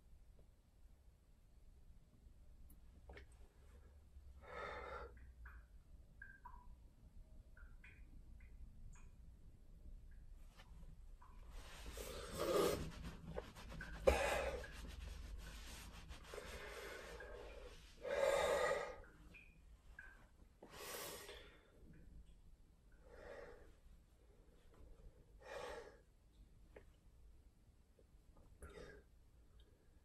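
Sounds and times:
towel rustling: 11.4s - 17.9s.

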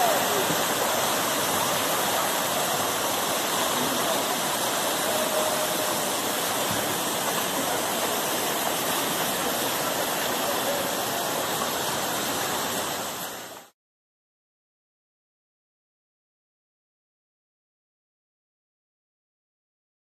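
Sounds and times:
river rapids rushing over rocks: 0.0s - 13.7s.

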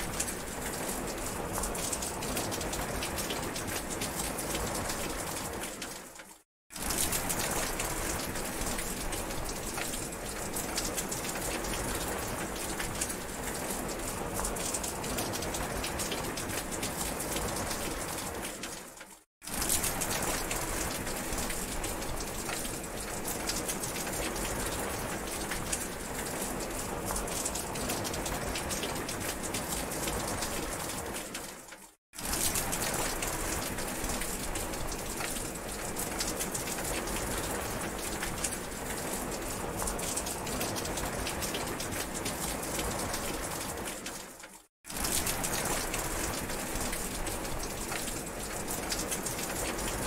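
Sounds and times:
heavy rain: 0.0s - 50.0s.

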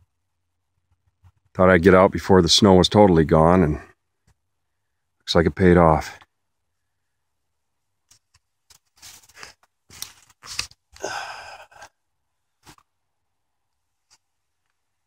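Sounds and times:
camera rubbing against clothing: 8.1s - 10.9s.

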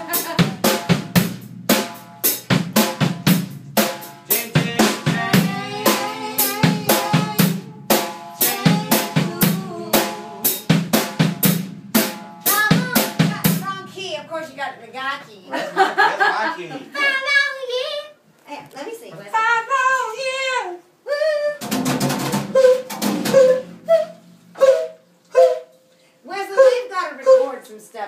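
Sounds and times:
drum kit playing: 0.0s - 15.4s, 21.6s - 25.7s.

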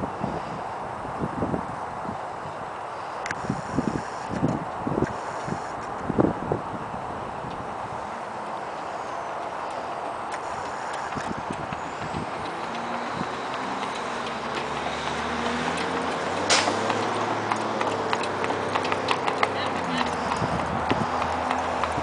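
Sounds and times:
vehicle rumble: 0.0s - 22.0s
horse hooves trotting on asphalt: 3.2s - 22.0s
sharp clack: 16.5s - 17.0s.

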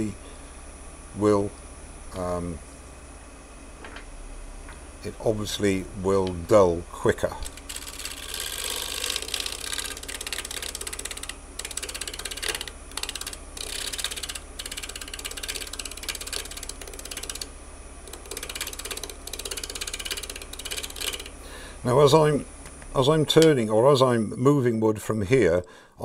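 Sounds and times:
lathe humming: 5.0s - 23.7s.

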